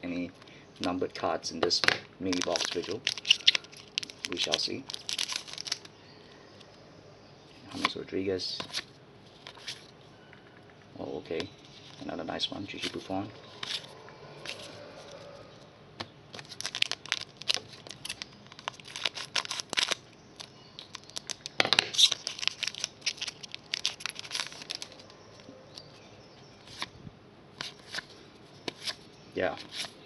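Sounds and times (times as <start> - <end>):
foil pack crinkling and tearing: 2.2 - 5.9, 16.3 - 25.1
cards sliding against each other: 12.8 - 14.8, 27.6 - 29.0, 29.6 - 30.0.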